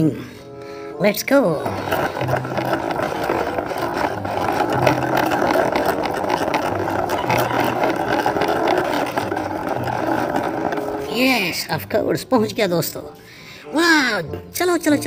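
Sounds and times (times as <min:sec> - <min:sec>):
plastic wheels rattling on concrete: 0:01.1 - 0:13.1.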